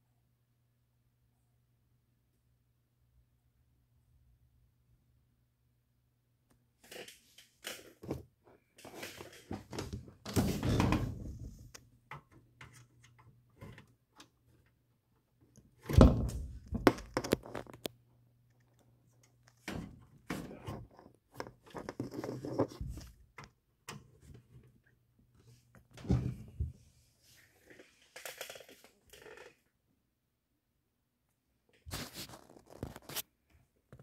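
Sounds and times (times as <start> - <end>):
cables rustling and knocking: 15.5 - 18.0, 18.6 - 24.8.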